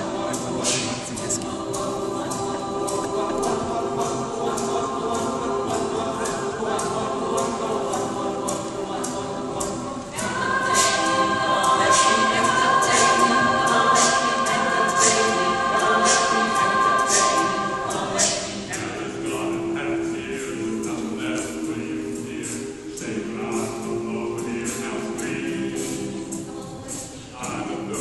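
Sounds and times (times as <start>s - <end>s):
choir singing with orchestra: 0.0s - 28.0s
sharp rhythmic strokes: 0.0s - 28.0s.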